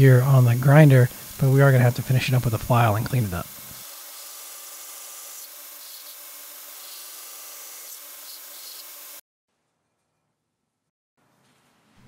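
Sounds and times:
belt grinder grinding steel: 3.2 - 9.2.

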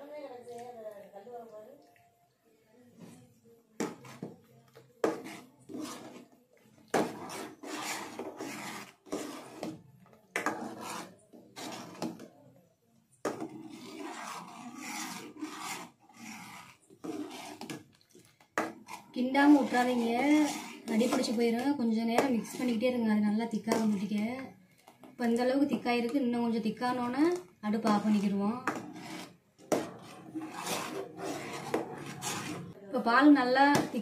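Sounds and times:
ladle scraping metal pan: 5.0 - 9.8, 10.4 - 12.3, 13.3 - 17.9, 18.6 - 22.9, 26.8 - 32.8.

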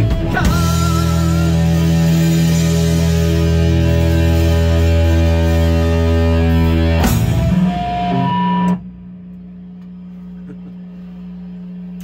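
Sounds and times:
guitar strumming: 0.0 - 8.9
steady low hum: 0.6 - 12.0.

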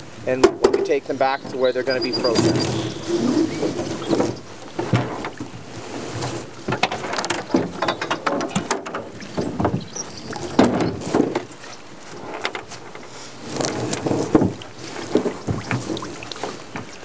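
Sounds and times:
net swishing and scraping: 2.2 - 7.2, 10.9 - 16.7
net knocking against hull: 6.2 - 11.6, 13.6 - 17.0.

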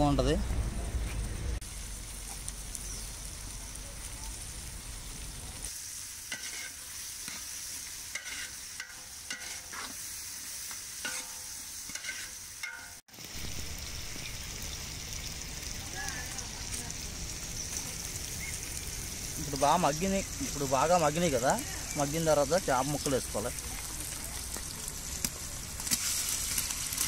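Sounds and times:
food sizzling in oil: 1.6 - 27.0
ladle scraping a metal pot: 6.3 - 7.4, 8.1 - 10.0, 11.0 - 12.9.

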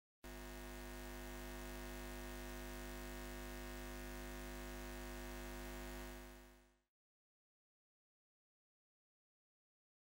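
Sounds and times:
neon sign buzzing: 0.3 - 6.6.

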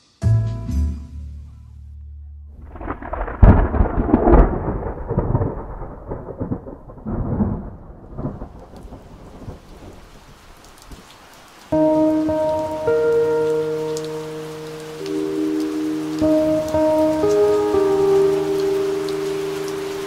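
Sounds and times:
thunder crackling and rumbling: 2.6 - 11.1
heavy rain hissing: 8.2 - 20.0.

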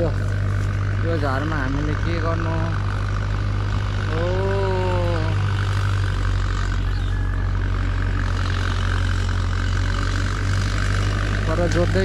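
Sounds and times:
tractor engine running: 0.0 - 12.0
drawn-out voice call: 3.9 - 8.3.

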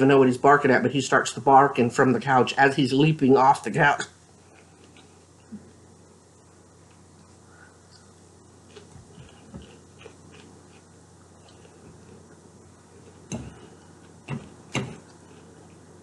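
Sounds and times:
soft chewing: 4.3 - 16.0.

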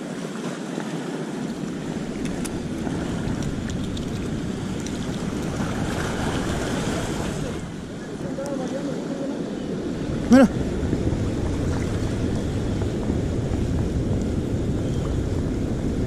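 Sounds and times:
sea surf washing ashore: 0.0 - 16.0
wind noise on microphone: 1.2 - 16.0.

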